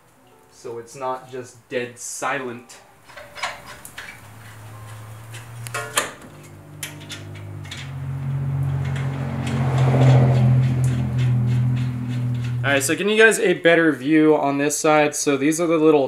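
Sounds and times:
metal parts clinking: 0:03.0 - 0:08.0.

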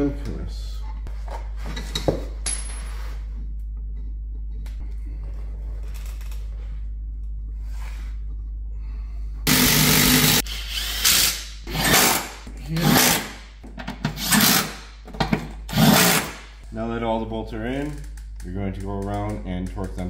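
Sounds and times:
cordless impact wrench bursts: 0:09.5 - 0:13.4, 0:14.2 - 0:14.9, 0:15.7 - 0:16.5.

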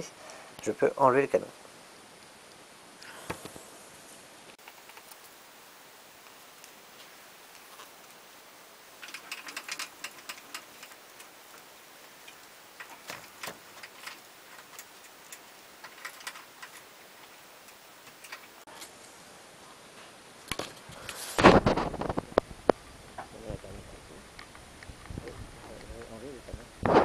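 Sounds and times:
metal parts clicking on wood: 0:09.0 - 0:18.6.

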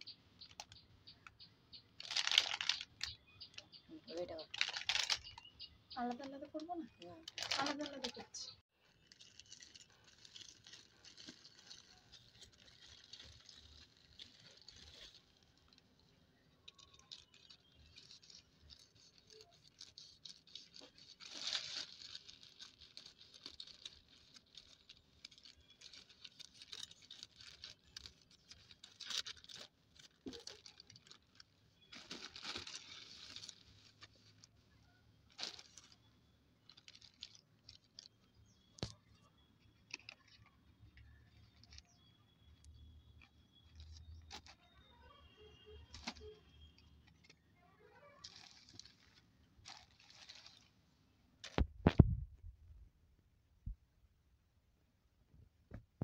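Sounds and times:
plastic bag rustling: 0:02.0 - 0:03.1, 0:04.1 - 0:38.6, 0:48.2 - 0:50.8
plastic tearing: 0:02.0 - 0:03.1, 0:09.0 - 0:15.9, 0:16.7 - 0:34.6, 0:35.3 - 0:39.0, 0:45.8 - 0:46.4, 0:47.2 - 0:50.7.

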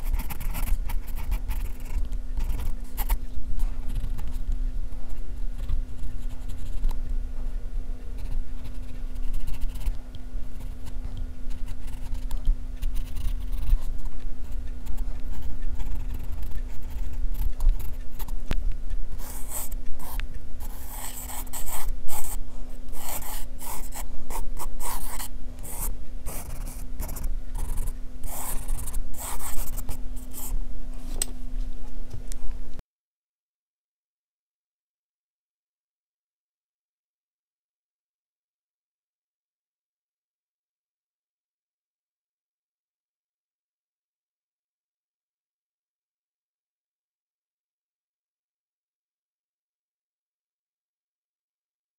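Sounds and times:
pencil scratching on paper: 0:00.0 - 0:04.4, 0:05.1 - 0:06.9, 0:08.1 - 0:18.4, 0:19.2 - 0:31.1
steady low hum: 0:00.0 - 0:32.8.

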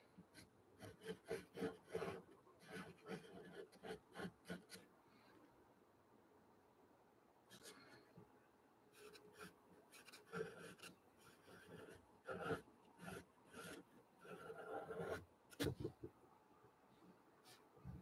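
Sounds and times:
pencil scratching on paper: 0:00.3 - 0:04.9, 0:09.0 - 0:15.9.

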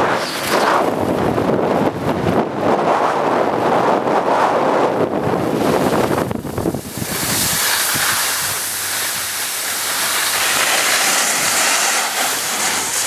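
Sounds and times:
wind buffeting microphone: 0:00.0 - 0:13.0
skis hissing over snow: 0:05.6 - 0:13.0.

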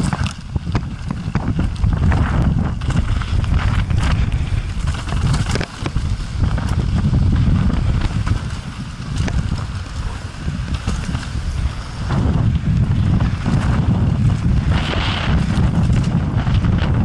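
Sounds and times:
bike knocking and rattling: 0:00.0 - 0:17.0
tyres rumbling over dirt: 0:00.0 - 0:17.0
wind buffeting microphone: 0:00.0 - 0:17.0.

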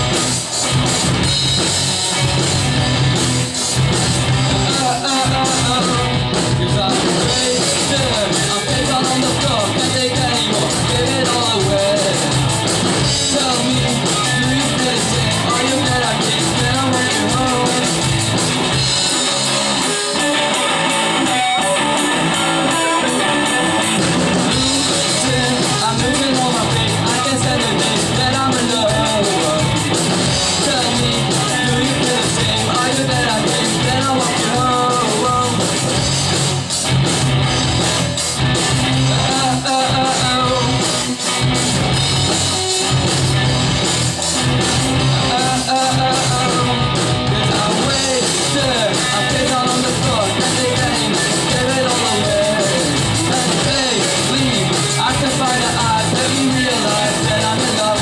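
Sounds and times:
drum kit: 0:00.0 - 0:58.0
electric guitars: 0:00.0 - 0:58.0
man singing into a microphone: 0:04.6 - 0:18.3, 0:19.3 - 0:23.8, 0:24.4 - 0:35.9, 0:39.0 - 0:41.2, 0:45.2 - 0:58.0.

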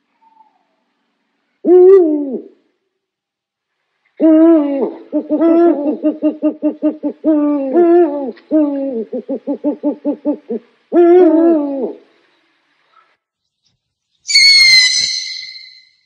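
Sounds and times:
owl hooting: 0:01.6 - 0:02.6, 0:04.2 - 0:12.2, 0:14.3 - 0:16.0.

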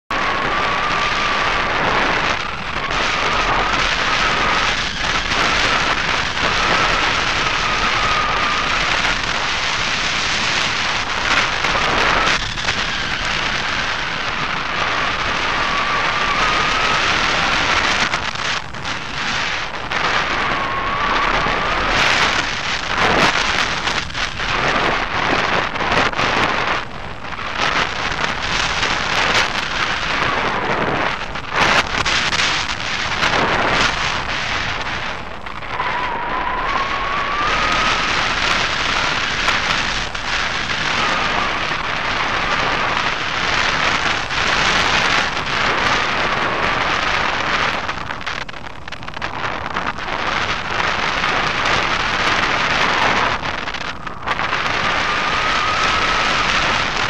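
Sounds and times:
wind rushing over microphone: 0:00.1 - 0:57.0.

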